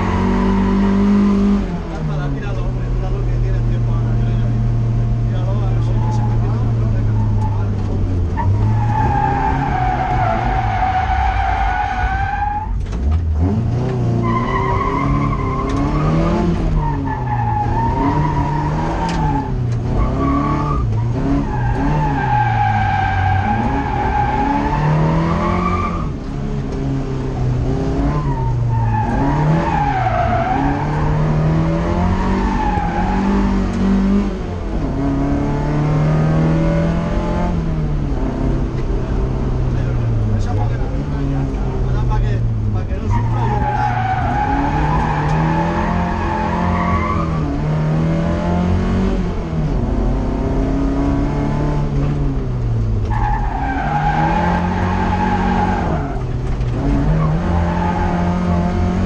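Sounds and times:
car engine revving: 0.0 - 59.0
tyres squealing: 16.8 - 26.1, 28.2 - 33.4, 42.9 - 47.5, 53.1 - 58.5.

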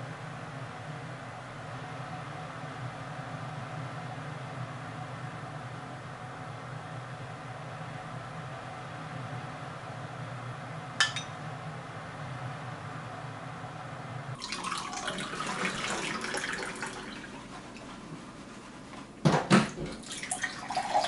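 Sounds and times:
dishes clattering: 11.0 - 11.4.

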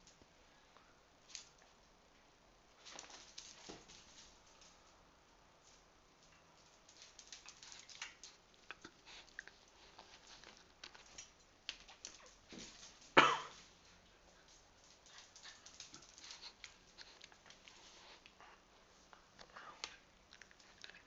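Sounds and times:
dog claws clicking on tiles: 6.3 - 13.0, 14.5 - 17.7.

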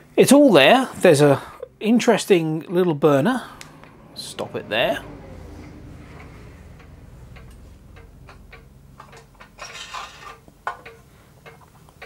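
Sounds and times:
small metal parts clinking: 9.0 - 11.8.

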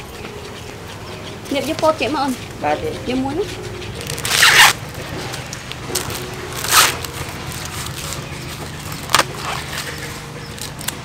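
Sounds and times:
steady low hum: 0.0 - 11.0
husk leaves crackling and rustling: 4.0 - 11.0
corn husk ripping: 4.1 - 4.8, 5.9 - 11.0.

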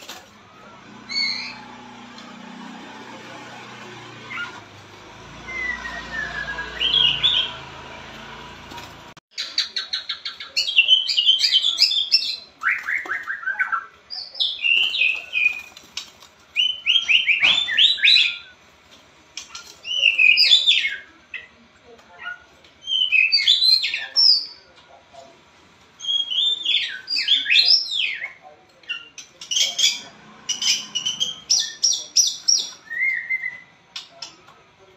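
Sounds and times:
bird singing whistles and trills: 5.4 - 7.6, 30.8 - 33.7.

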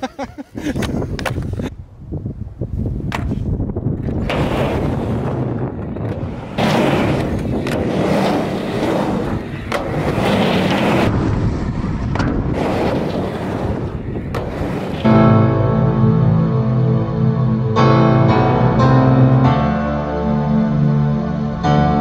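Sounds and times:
skateboard wheels rolling on concrete: 0.0 - 15.6
skateboard clacks: 0.8 - 1.7, 3.1 - 15.1.

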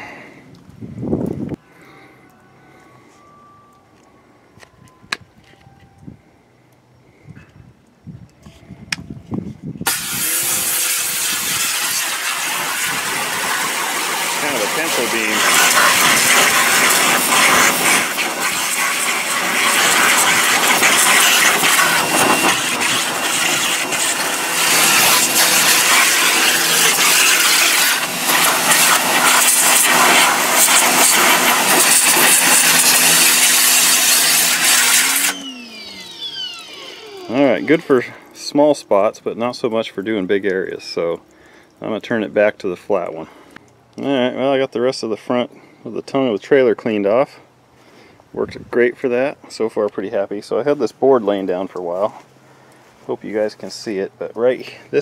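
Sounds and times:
water jet hissing on metal: 9.9 - 35.4
pressure washer running: 9.9 - 39.4
electric pump motor hum: 9.9 - 40.5.

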